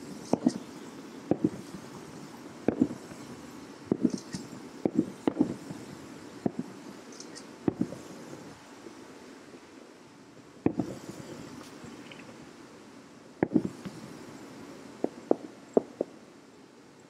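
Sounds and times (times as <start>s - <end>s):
muffled firework booms: 1.3s - 1.9s, 2.6s - 3.3s, 3.9s - 6.8s, 7.6s - 8.1s, 10.6s - 11.5s, 13.4s - 14.0s.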